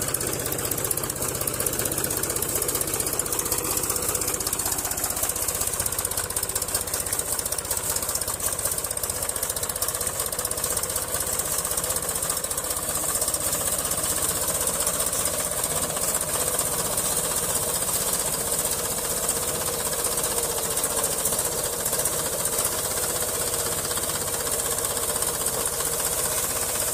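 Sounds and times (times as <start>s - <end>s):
tractor diesel engine clatter: 0.0s - 26.9s.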